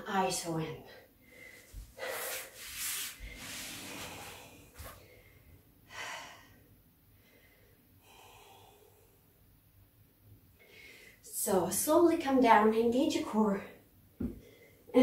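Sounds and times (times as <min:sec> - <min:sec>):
woman breathing heavily: 0:01.0 - 0:09.3, 0:10.6 - 0:11.2.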